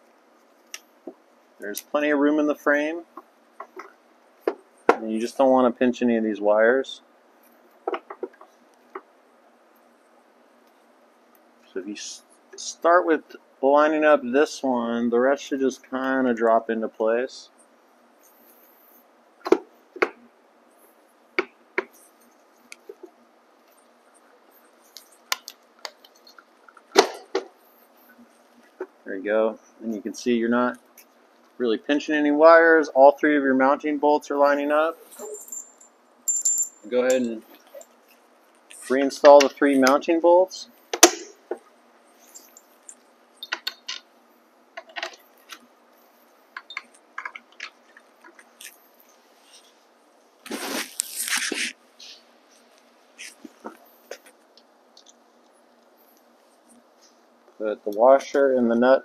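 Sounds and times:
metal bolts clicking and clinking: 0:35.1 - 0:38.0, 0:42.2 - 0:44.1, 0:46.6 - 0:48.7.

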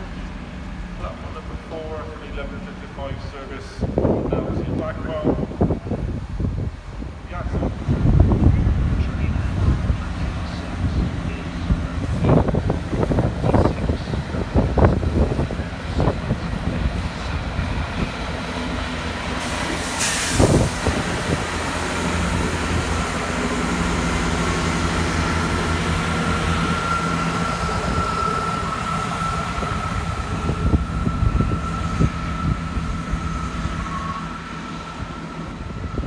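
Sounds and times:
diesel train engine drone: 0:00.0 - 0:36.0
high whine: 0:19.9 - 0:36.0.

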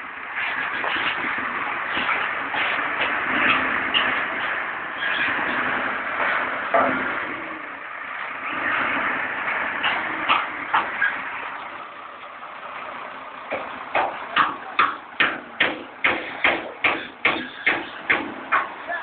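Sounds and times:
diesel engine idling: 0:00.0 - 0:19.0
regular sharp tapping: 0:13.5 - 0:18.8.

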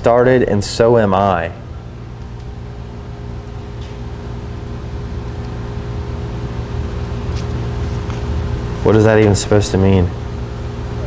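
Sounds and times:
machinery humming: 0:00.0 - 0:11.0.

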